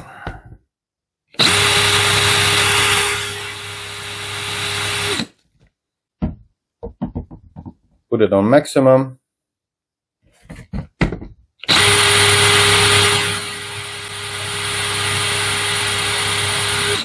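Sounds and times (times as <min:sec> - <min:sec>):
cordless drill whirring: 0:01.4 - 0:05.3, 0:11.6 - 0:17.0.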